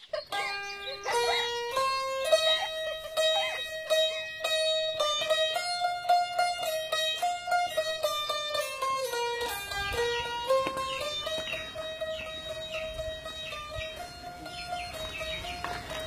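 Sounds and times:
plucked string instrument melody: 0.0 - 16.0.

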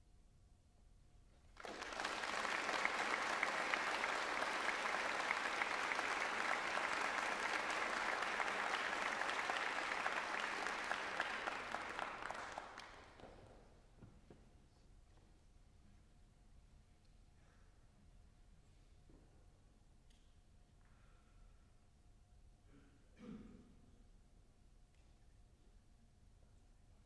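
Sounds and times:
audience applauding: 1.6 - 13.4.

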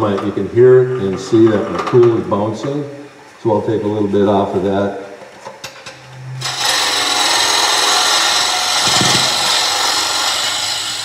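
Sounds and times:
lathe tool cutting wood: 6.4 - 11.0.

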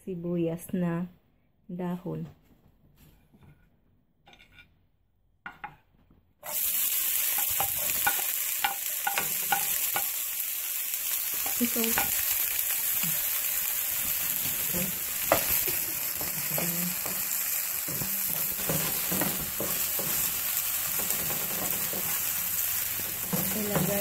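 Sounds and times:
wooden spoon scraping a pan: 4.3 - 4.8, 13.9 - 24.0
onions sizzling in oil: 6.4 - 24.0.

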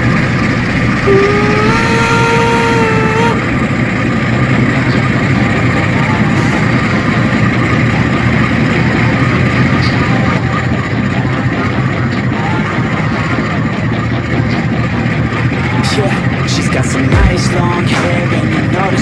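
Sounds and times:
loud noisy din: 0.0 - 19.0
toy train electronic horn: 1.0 - 3.5.

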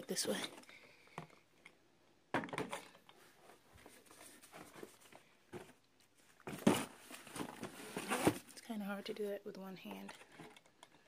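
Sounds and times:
plastic containers clicking and rustling: 2.4 - 3.2, 4.2 - 8.7, 9.8 - 11.0.

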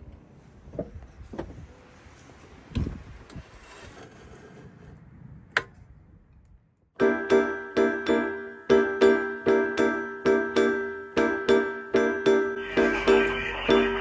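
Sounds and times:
chiming music: 7.0 - 14.0.

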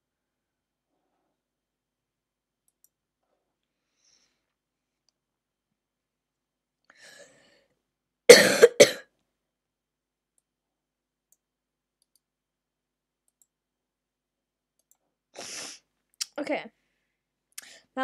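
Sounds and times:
person coughing: 8.3 - 9.1.

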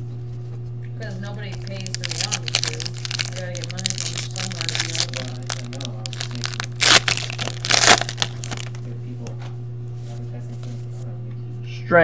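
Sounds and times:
foil wrapper crinkling: 1.3 - 8.9
foil wrapper ripping: 1.5 - 8.9.

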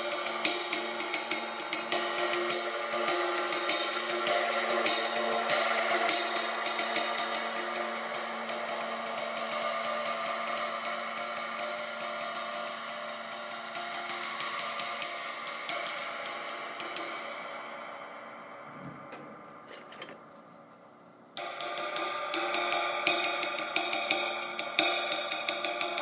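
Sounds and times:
cymbal ringing wash: 0.0 - 18.7
ride cymbal strokes: 0.0 - 19.6.

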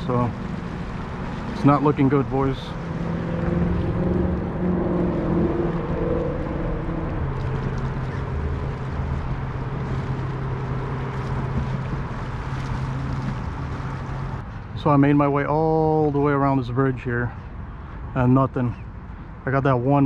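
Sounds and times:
engine droning: 0.0 - 20.0.

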